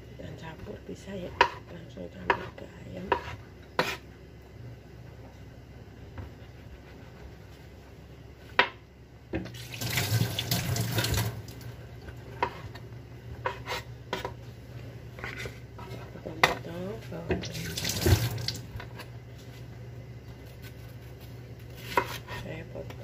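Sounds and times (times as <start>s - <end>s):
water tap running into sink: 9.5s - 11.7s, 17.4s - 18.7s.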